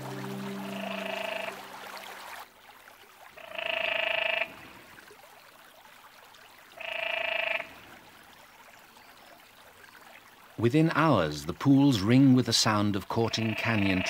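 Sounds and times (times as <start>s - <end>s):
tree frog calling: 0.0s - 1.7s, 3.4s - 4.6s, 6.8s - 7.7s, 13.2s - 14.0s.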